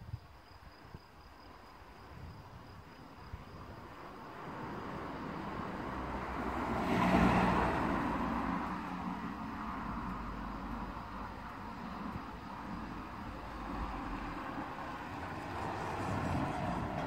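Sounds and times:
road vehicle passing: 3.8s - 17.0s.

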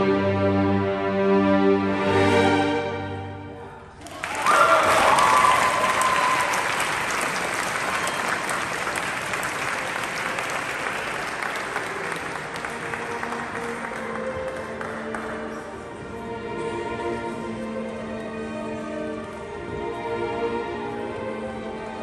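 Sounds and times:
audience applause: 4.0s - 15.7s
person whooping: 4.2s - 6.8s.

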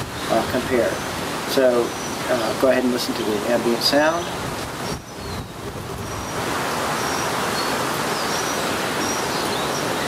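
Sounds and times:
wind rushing: 4.3s - 8.9s.

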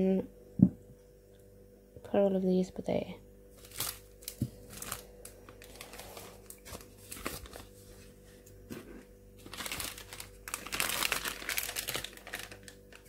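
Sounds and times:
plastic packaging crinkling: 3.5s - 8.2s, 9.4s - 13.0s.

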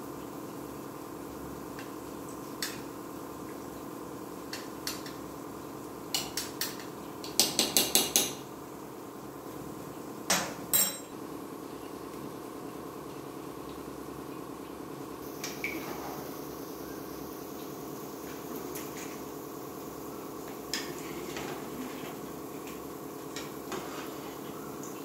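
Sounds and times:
spoon clinking in pot: 10.7s - 11.2s.

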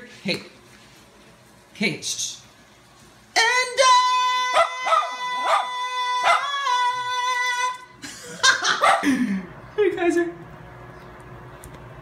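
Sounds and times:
dog howling: 4.0s - 7.8s
dog yipping: 4.5s - 6.6s, 8.8s - 9.0s.

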